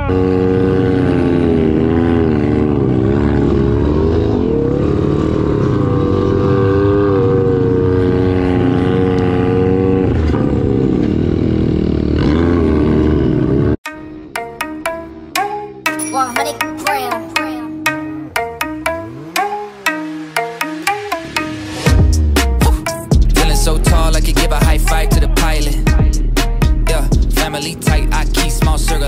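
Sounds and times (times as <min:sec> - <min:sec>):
dirt bike engine revving: 0:00.0 - 0:13.8.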